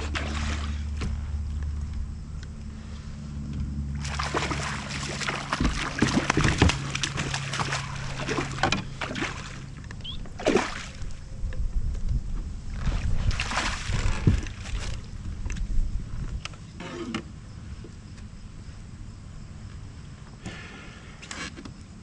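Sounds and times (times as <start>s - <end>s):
fish splashing in water: 0.0s - 1.0s, 4.0s - 11.3s, 12.8s - 15.1s
steady low hum: 0.0s - 22.0s.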